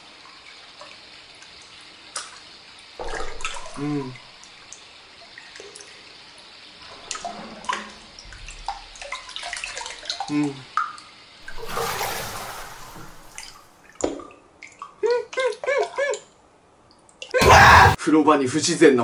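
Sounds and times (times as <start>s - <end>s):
water dripping and lapping: 0.0s - 17.4s
water splashing: 3.0s - 4.5s, 6.8s - 10.5s, 11.4s - 14.9s.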